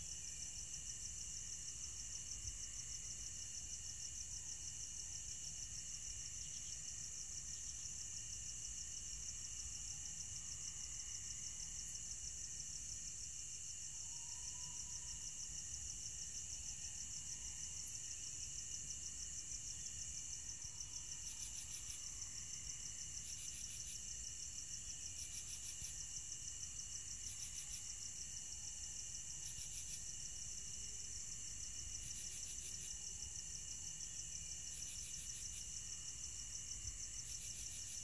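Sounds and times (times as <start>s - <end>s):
crickets trilling: 0.2s - 38.0s
higher insect chirp bursts: 14.0s - 38.0s.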